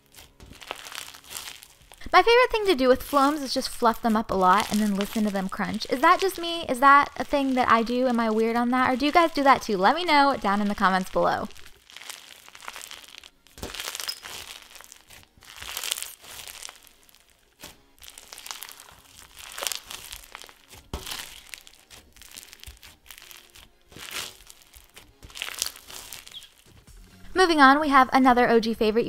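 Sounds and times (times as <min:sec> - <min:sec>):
slime crunching and crackling: 0:00.0 - 0:27.0.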